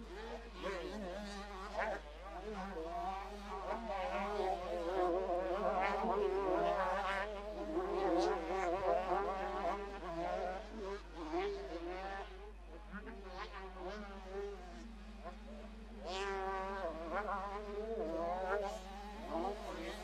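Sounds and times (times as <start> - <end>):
motocross bike engines racing: 0.0 - 20.0.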